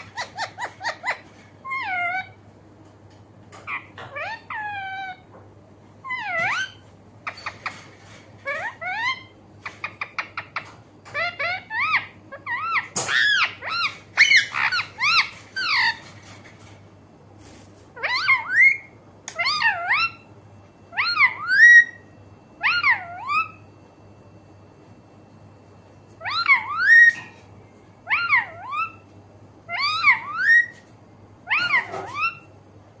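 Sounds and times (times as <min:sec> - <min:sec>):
parakeet calling: 0:00.0 - 0:02.4, 0:03.6 - 0:05.3, 0:06.0 - 0:16.3, 0:18.0 - 0:20.3, 0:20.9 - 0:23.7, 0:26.2 - 0:27.4, 0:28.0 - 0:30.8, 0:31.4 - 0:32.6.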